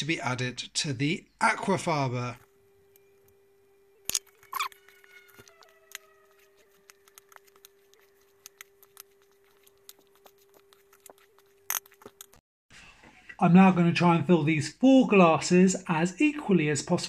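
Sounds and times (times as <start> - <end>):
faint steady hum: 0.0 - 13.6.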